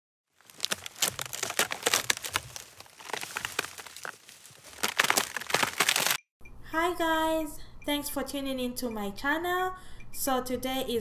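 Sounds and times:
dense crackling clicks: 0:00.4 - 0:06.2.

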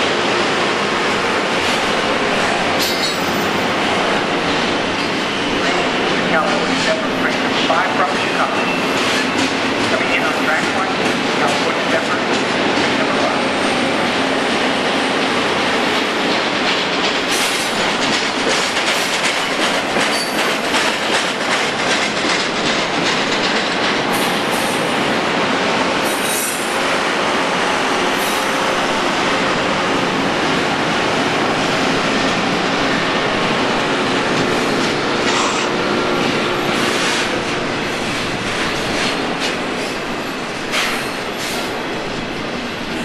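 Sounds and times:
train wheels rumbling on rail: 0:00.0 - 0:43.0
wheels clicking over rail joints: 0:16.2 - 0:24.9.

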